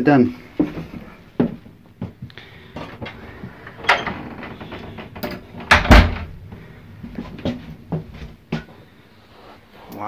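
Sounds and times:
door thumping shut: 3.8 - 6.5.

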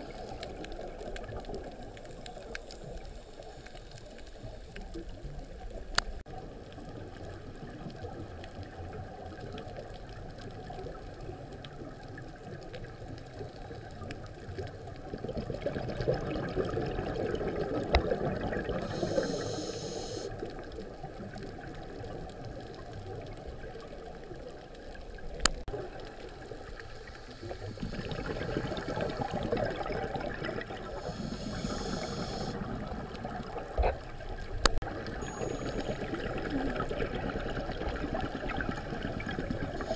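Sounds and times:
scuba diver breathing bubbles: 15.1 - 20.5, 27.0 - 34.0, 35.2 - 39.9.

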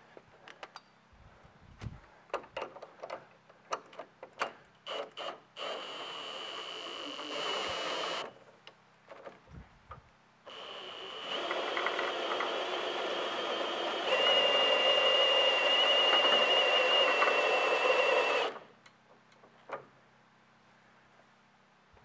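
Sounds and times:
cordless drill whining: 4.9 - 8.3, 10.5 - 18.7.

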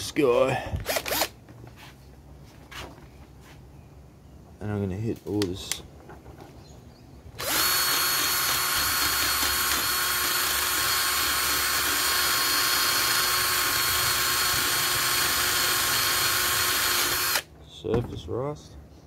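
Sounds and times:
drill with wire brush whining: 0.8 - 1.3, 7.4 - 17.5.

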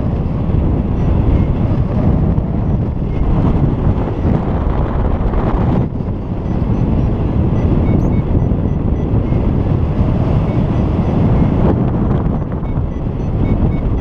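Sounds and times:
wind rumble on microphone: 0.0 - 14.0
faint short beeps: 5.9 - 11.6, 12.2 - 14.0.

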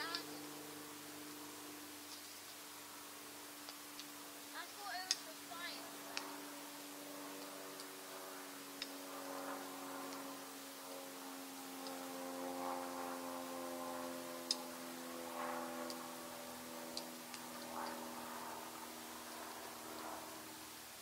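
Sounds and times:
campfire crackling: 0.0 - 21.0
steady low hum: 0.0 - 21.0
sharp pops of burning wood: 2.0 - 2.8, 3.5 - 5.3, 6.0 - 8.1, 8.8 - 9.1, 10.0 - 11.0, 11.7 - 12.0, 14.4 - 16.1, 16.9 - 19.5.

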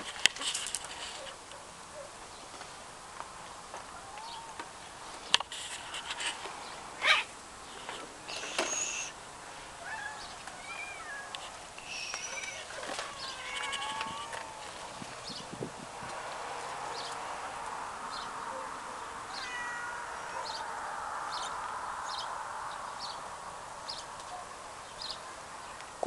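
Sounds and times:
cats meowing: 3.9 - 4.8, 7.0 - 7.3, 8.3 - 9.1, 9.8 - 15.4, 18.6 - 22.3
short bird chirps: 8.3 - 9.1.

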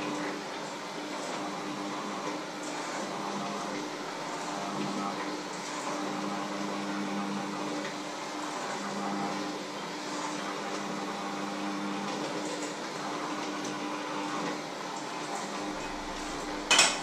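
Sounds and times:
electric hand mixer whirring: 0.0 - 17.0.

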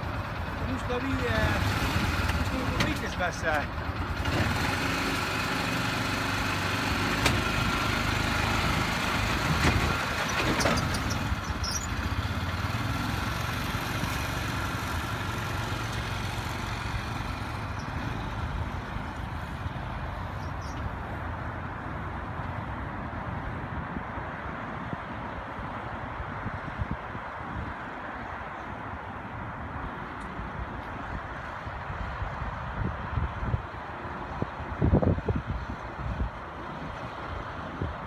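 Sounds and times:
vehicle engine running under load: 0.0 - 22.9.

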